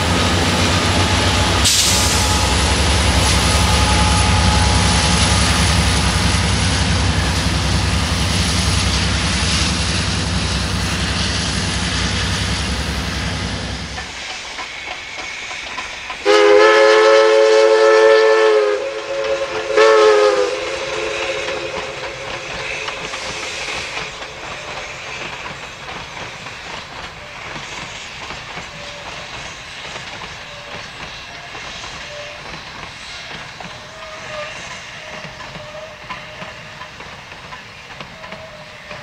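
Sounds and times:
steam locomotive whistle: 0.0s - 11.4s, 16.2s - 25.4s, 30.4s - 36.8s, 38.0s - 39.0s
train rumbling and clattering past: 0.0s - 39.0s.

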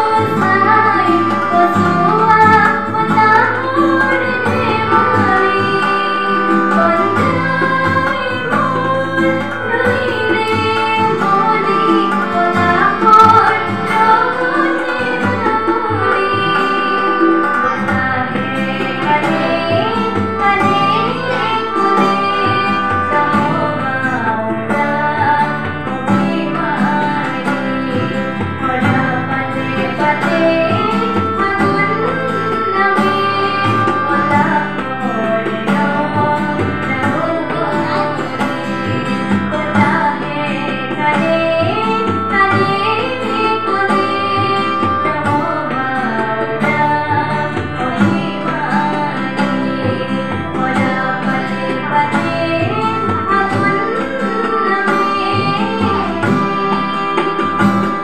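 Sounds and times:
harmonium: 0.0s - 58.0s
tabla: 0.0s - 58.0s
woman singing: 0.0s - 58.0s.

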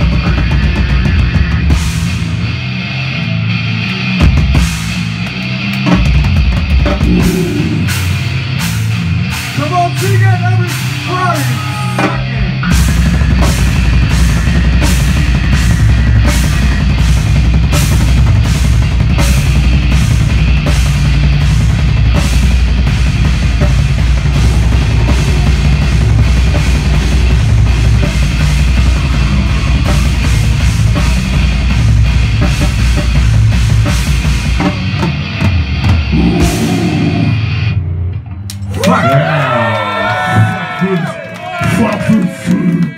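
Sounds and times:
heavy metal band playing: 0.0s - 42.9s
pounding drum kit: 0.0s - 42.9s.

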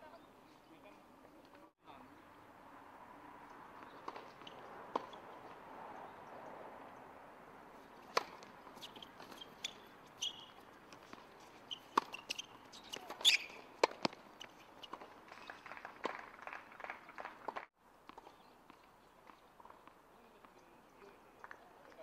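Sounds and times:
tennis ball bouncing: 3.4s - 5.6s, 7.8s - 16.3s
racket hitting ball: 3.7s - 5.6s, 7.9s - 16.2s.

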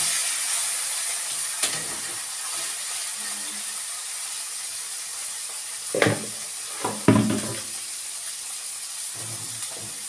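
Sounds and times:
fish sizzling in a frying pan: 0.0s - 10.0s
kitchenware knocks: 6.0s - 7.7s.

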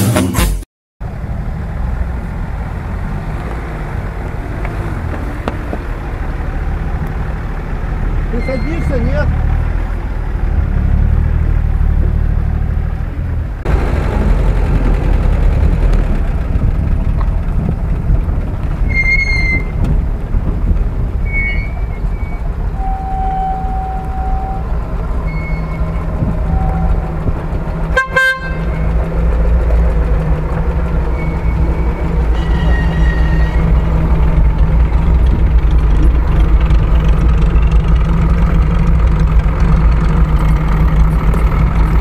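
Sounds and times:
horn toot: 0.0s - 0.7s, 27.9s - 28.9s, 32.3s - 33.8s
off-road engines rumbling: 0.0s - 42.0s
high whistle-like tones: 18.8s - 19.8s, 21.2s - 27.1s, 31.1s - 33.8s.

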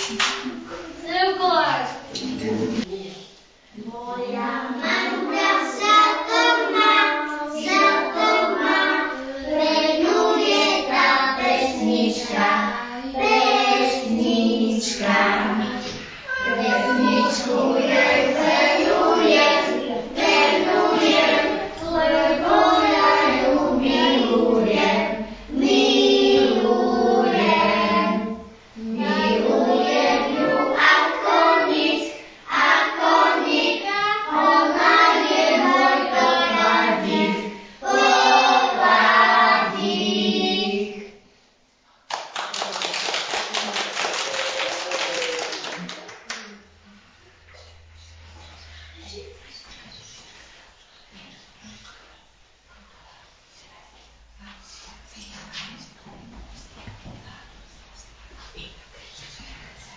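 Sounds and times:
children singing in unison: 4.3s - 41.2s.

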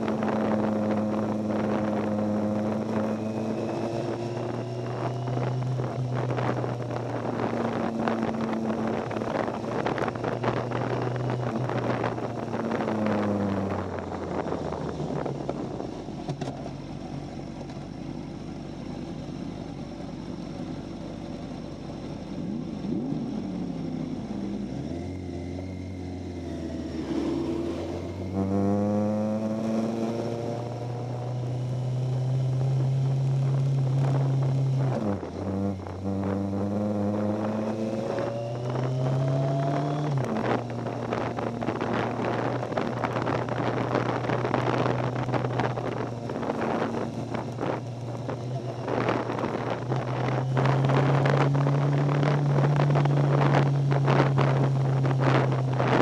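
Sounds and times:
motorcycle engine: 0.0s - 56.0s
wind rush: 26.7s - 56.0s.

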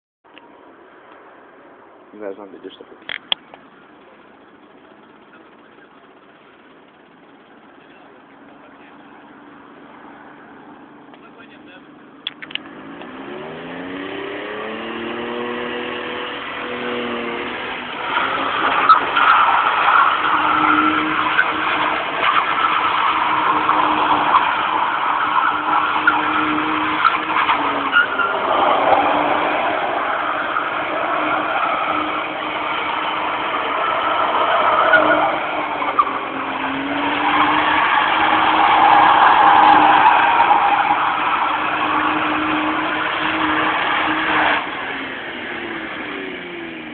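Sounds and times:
car engine at high revs: 2.6s - 46.9s
tyres squealing on tarmac: 15.8s - 45.6s.

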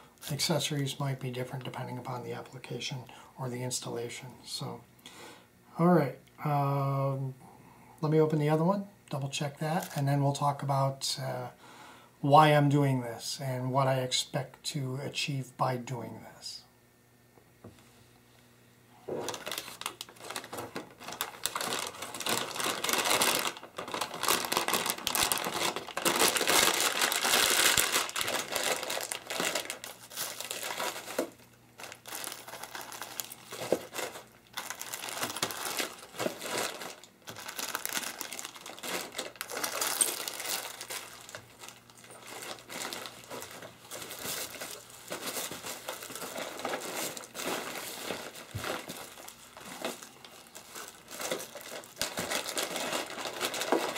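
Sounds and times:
foil packaging crinkling: 19.1s - 53.9s.

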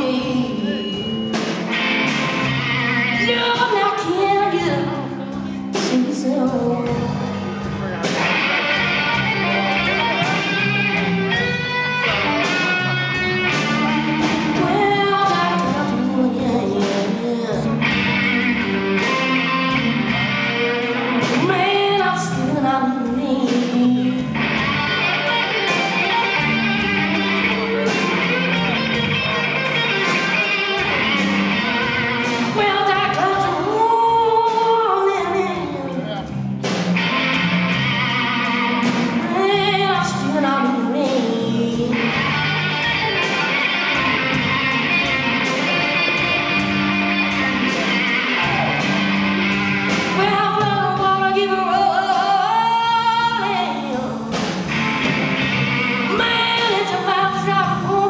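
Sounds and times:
electric guitar through amplifier: 0.0s - 58.0s
low repeating guitar line: 0.0s - 58.0s.

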